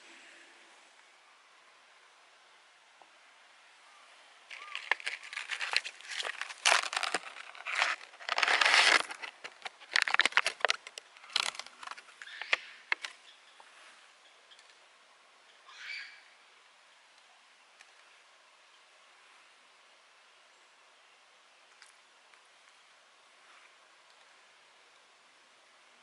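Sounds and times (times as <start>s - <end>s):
paper towel crinkling: 4.5s - 12.0s.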